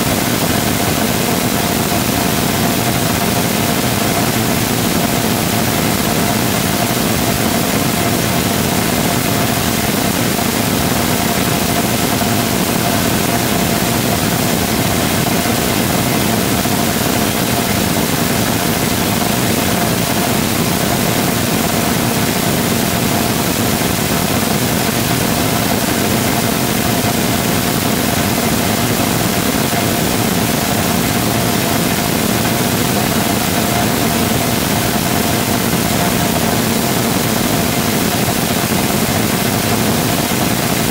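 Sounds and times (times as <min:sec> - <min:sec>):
rocket engine exhaust roar: 0:00.0 - 0:40.9.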